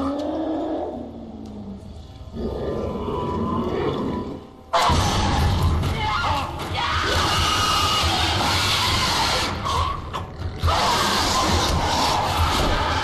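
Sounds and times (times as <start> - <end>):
horror film music: 0.0 - 13.0
screaming: 2.9 - 13.0.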